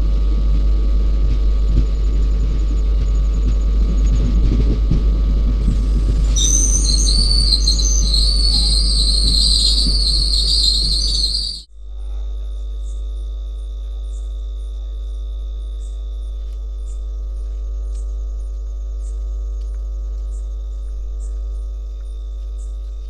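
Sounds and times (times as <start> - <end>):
steady hum with low rumble: 0.0 - 23.0
crickets: 1.4 - 23.0
faint high chirps: 5.6 - 11.7.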